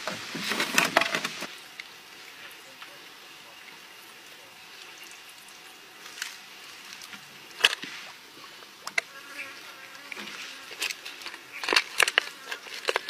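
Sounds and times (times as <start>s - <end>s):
handling clicks and knocks: 10.8s - 13.0s.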